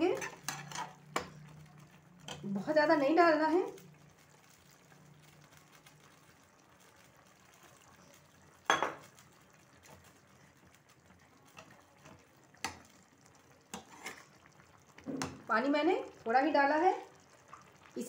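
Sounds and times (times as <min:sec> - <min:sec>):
water pouring into pan: 0:00.0 - 0:18.0.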